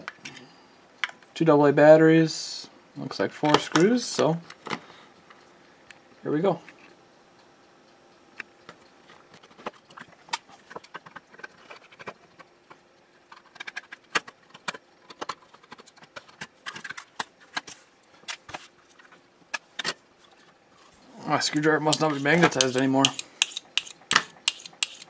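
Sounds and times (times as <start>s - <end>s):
screwdriver clicking on screws: 21.9s - 25.0s.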